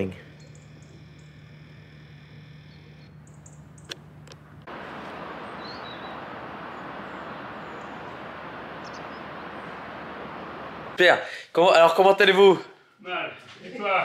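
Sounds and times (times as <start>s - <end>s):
faint bird chirp: 0.0s - 4.0s, 5.0s - 10.2s
quiet steady hum: 0.0s - 11.4s
steady rushing hiss: 4.4s - 12.4s.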